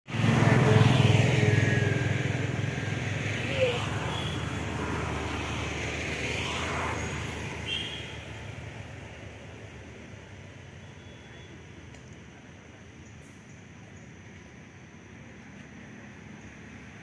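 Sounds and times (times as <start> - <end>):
engine running: 0.1 - 9.7.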